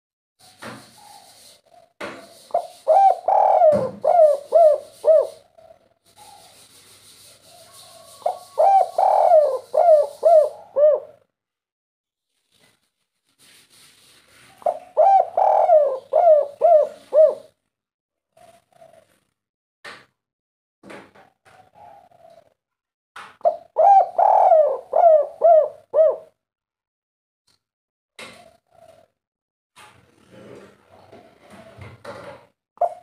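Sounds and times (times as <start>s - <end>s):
dove cooing: 1.0s - 6.6s, 7.5s - 11.2s, 14.6s - 17.6s, 18.3s - 19.3s, 21.6s - 22.6s, 23.4s - 26.4s, 28.3s - 29.1s, 32.8s - 33.0s.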